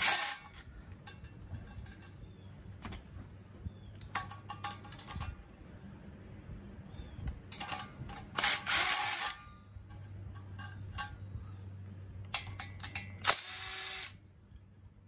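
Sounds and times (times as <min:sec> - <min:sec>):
cordless power tool spinning nuts: 0:00.0 - 0:00.6, 0:08.3 - 0:09.4, 0:13.2 - 0:14.2.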